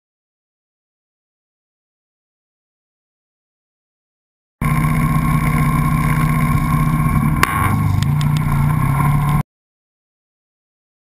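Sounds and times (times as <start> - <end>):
atv engine running: 4.6 - 9.4.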